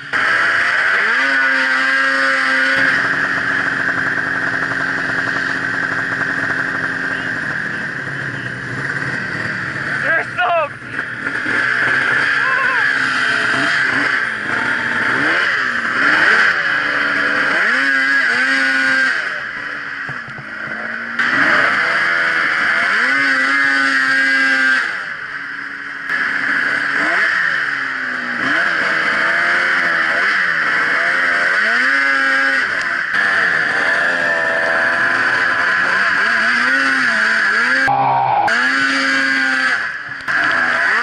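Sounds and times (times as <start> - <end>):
snowmobile engine revving: 0.0 - 41.0.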